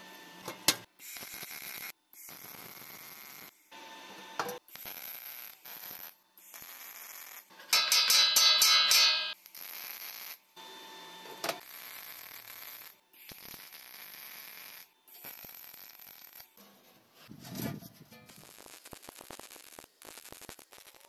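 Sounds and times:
welding arc crackling and hissing: 0:00.6 - 0:03.8, 0:04.5 - 0:10.5, 0:11.2 - 0:17.3, 0:18.1 - 0:21.0
metal clang: 0:07.7 - 0:09.4
sheet steel clattering: 0:07.7 - 0:09.4.

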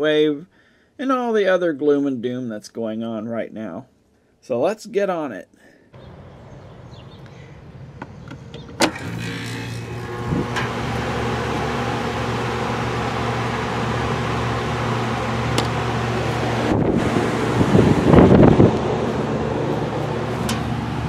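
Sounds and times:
compressor and fan hum: 0:06.0 - 0:21.0.

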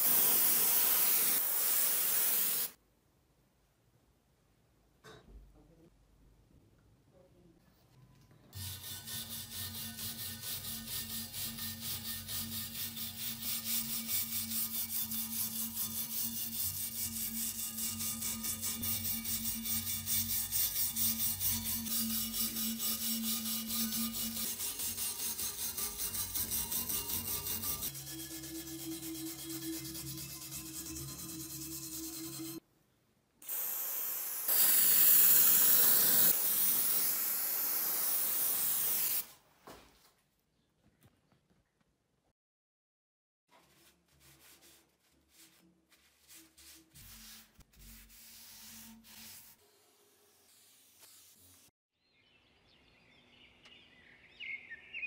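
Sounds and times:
liquid spray hissing: 0:00.0 - 0:02.8, 0:33.4 - 0:39.3
wire brush scrubbing steel: 0:08.6 - 0:32.6.

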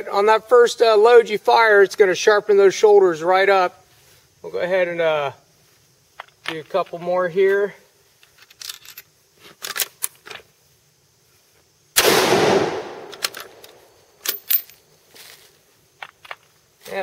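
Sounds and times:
rifle shot: 0:12.0 - 0:13.8
rifle bolt clicks: 0:12.8 - 0:14.7.

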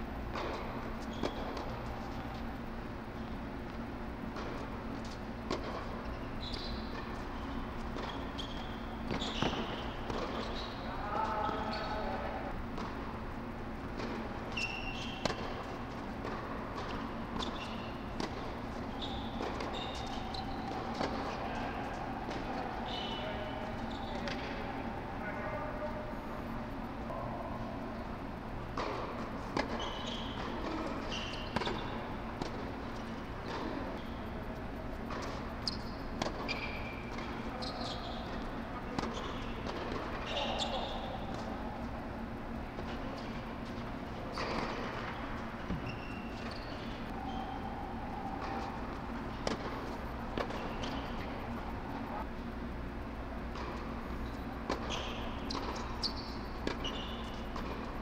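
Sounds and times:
steady low hum: 0:00.0 - 0:58.0
shoes squeaking on court: 0:00.3 - 0:25.8, 0:28.2 - 0:52.3, 0:53.3 - 0:58.0
tennis ball bouncing: 0:06.9 - 0:10.7, 0:13.8 - 0:22.8, 0:28.7 - 0:34.1, 0:48.4 - 0:51.7.

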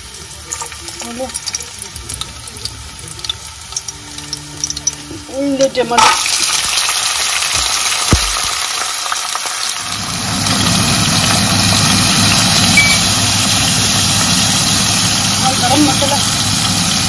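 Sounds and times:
peas sizzling in hot oil: 0:00.0 - 0:17.0
steady low hum: 0:00.1 - 0:06.3.

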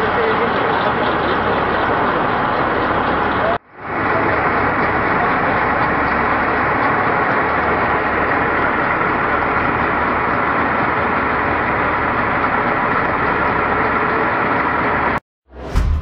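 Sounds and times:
faint voices: 0:00.0 - 0:09.7
vehicle engine running: 0:00.0 - 0:16.0.

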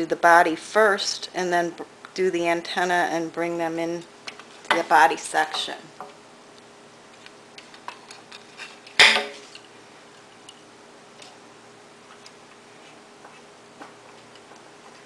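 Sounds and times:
sharp loud clack: 0:09.0 - 0:09.4.

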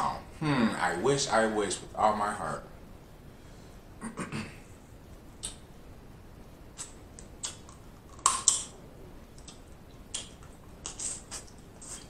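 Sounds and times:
wet mouth sounds: 0:06.8 - 0:08.7, 0:09.3 - 0:12.0
crawfish shells cracking: 0:07.2 - 0:08.7.

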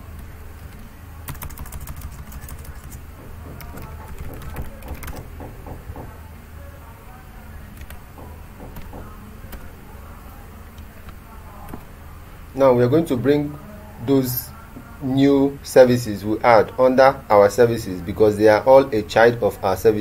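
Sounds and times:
keyboard typing: 0:00.0 - 0:06.2, 0:07.7 - 0:09.7
steady low hum: 0:00.0 - 0:20.0.

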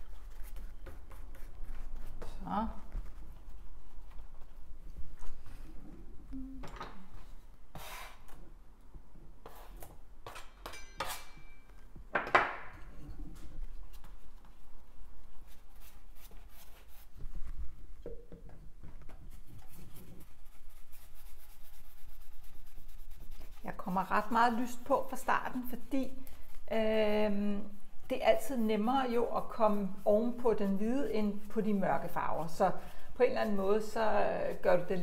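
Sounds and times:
paintbrush scrubbing canvas: 0:00.0 - 0:05.8, 0:13.4 - 0:18.0, 0:18.7 - 0:35.0
clinks and knocks: 0:10.3 - 0:12.7.

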